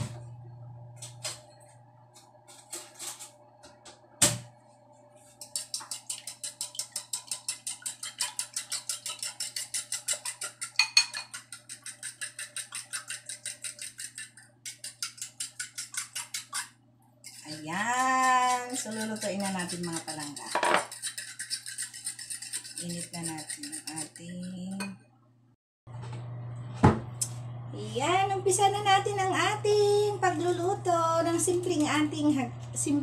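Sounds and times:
whisk clicking against bowl: 5.4s - 24.9s.

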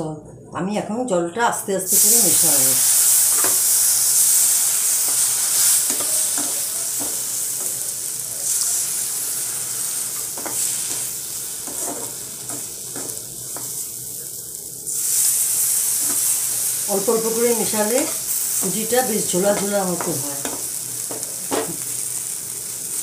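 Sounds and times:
food sizzling in a pan: 1.9s - 23.0s
spatula scraping and tapping a pan: 3.3s - 3.6s, 5.0s - 7.7s, 10.2s - 13.8s.

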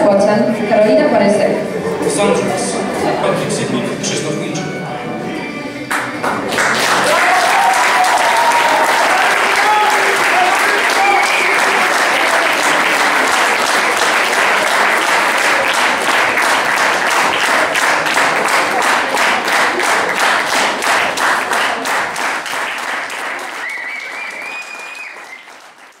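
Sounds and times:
audience applauding: 5.9s - 26.0s
thin high whistle tone: 23.6s - 25.5s.

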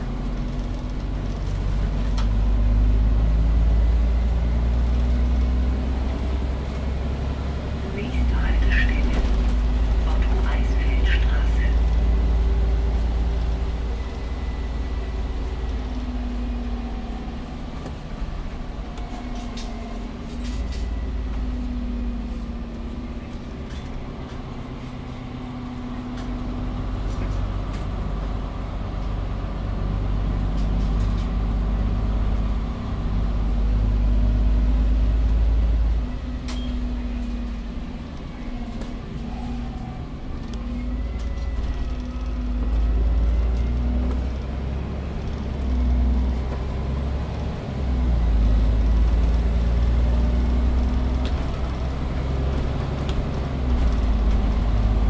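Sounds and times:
bus engine rumble: 0.0s - 55.0s.

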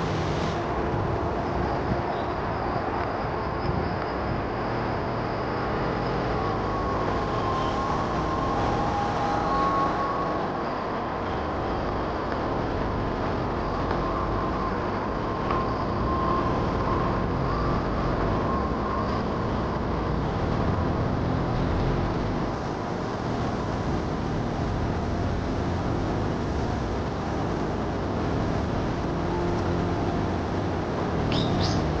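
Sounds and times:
steady low rumbling: 0.0s - 32.0s
faint thin wavering tones: 0.6s - 22.8s.

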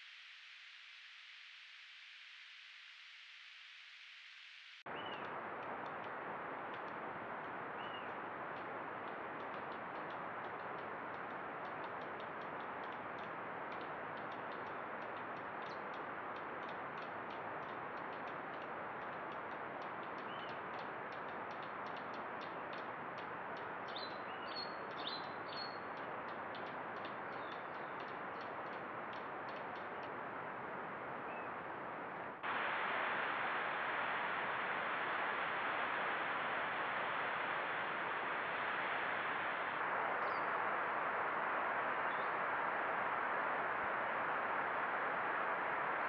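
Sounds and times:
microphone hiss: 0.0s - 46.0s
faint rapid ticking: 5.2s - 24.0s.

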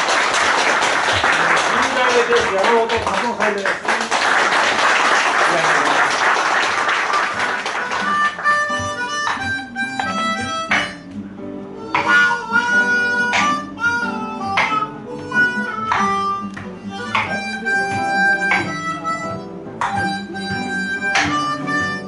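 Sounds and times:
audience applause: 0.0s - 8.4s
blues harmonica playing: 7.3s - 22.0s.

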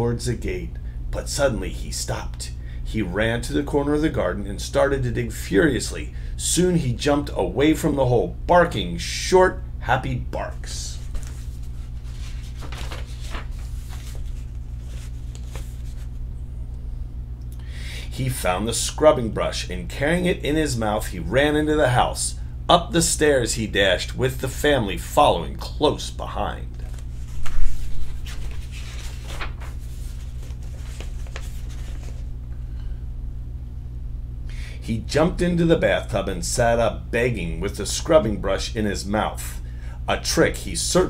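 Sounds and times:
steady low hum: 0.0s - 41.0s
low hum: 9.6s - 21.4s
book pages rustling: 11.0s - 16.2s, 26.8s - 32.4s.

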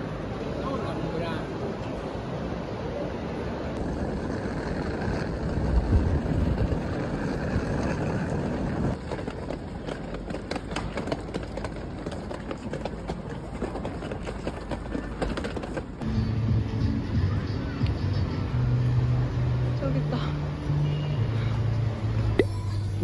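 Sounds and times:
suitcase wheels rumbling on paving: 3.7s - 16.4s.

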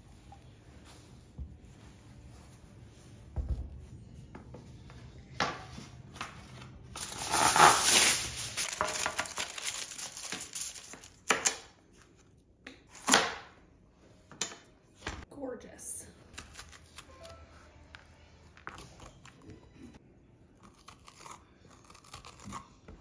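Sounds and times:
foil crinkling: 7.0s - 11.3s.

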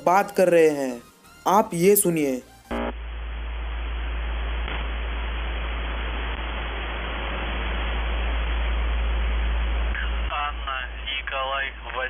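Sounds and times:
radio static hiss: 1.6s - 12.0s
low hum: 2.7s - 11.8s.

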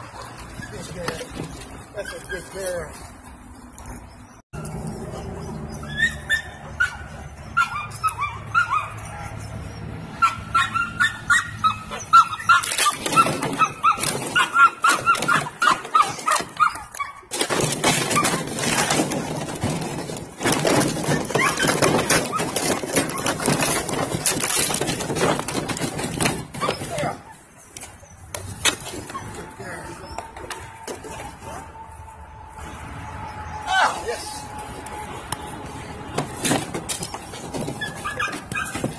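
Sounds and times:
puppies yipping and barking: 0.0s - 38.9s
plastic bottles crunching: 17.3s - 27.0s.

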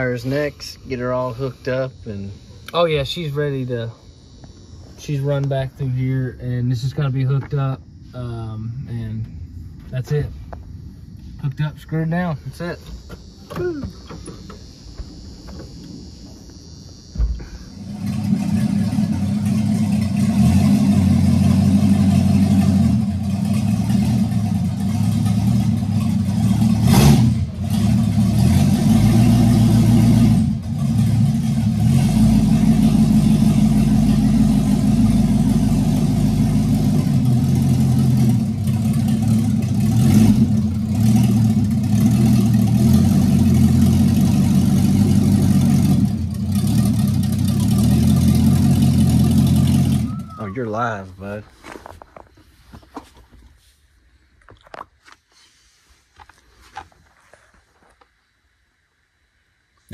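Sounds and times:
van engine running: 0.0s - 53.4s
sharp exhaust pop: 12.5s - 50.2s.

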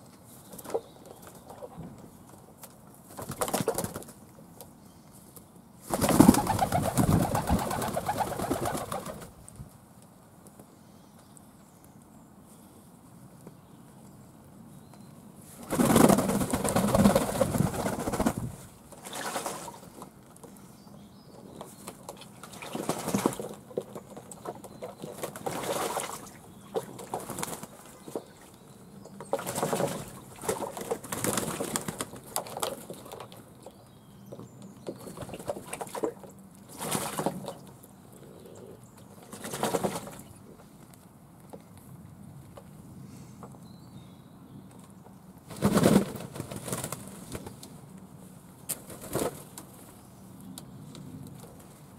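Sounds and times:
wings flapping: 3.1s - 4.2s, 5.9s - 9.4s, 15.6s - 19.8s, 22.4s - 23.6s, 25.2s - 27.9s, 29.4s - 33.0s, 39.2s - 40.3s, 45.5s - 47.6s, 48.7s - 49.6s.

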